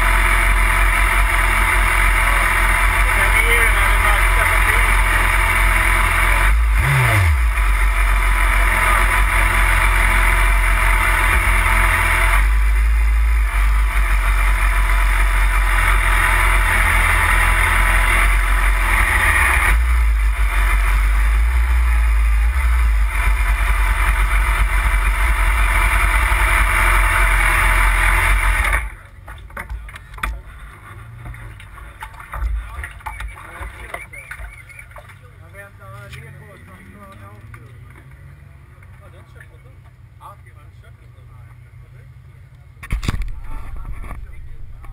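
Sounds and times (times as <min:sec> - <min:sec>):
motorcycle engine idling: 0:00.0 - 0:35.8.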